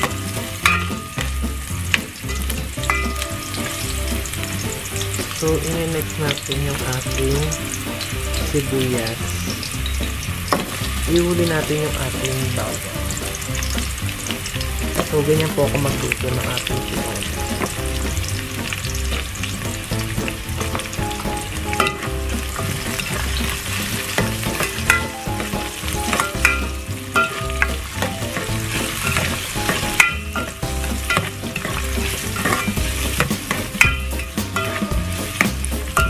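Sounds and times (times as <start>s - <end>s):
onion sizzling in hot oil: 0.0s - 36.0s
utensil scraping and tapping pot: 21.6s - 36.0s.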